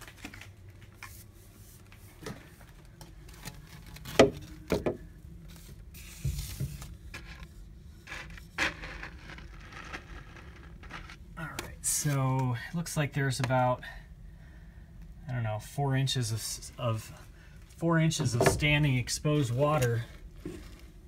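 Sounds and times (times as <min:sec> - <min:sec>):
plastic pipe knocking on wood: 0:04.2 - 0:05.0.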